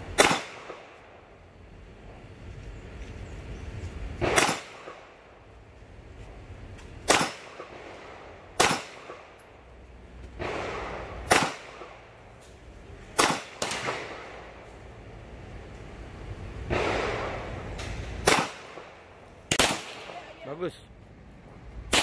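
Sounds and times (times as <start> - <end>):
handgun shots: 0.2 - 0.8, 4.2 - 4.9, 7.1 - 7.6, 8.6 - 9.2, 11.3 - 11.9, 13.2 - 14.1, 18.2 - 18.7.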